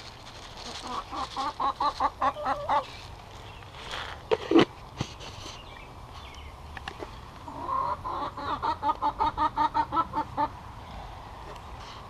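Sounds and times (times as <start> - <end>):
hen clucking: 0.6 - 3.0, 7.4 - 10.6.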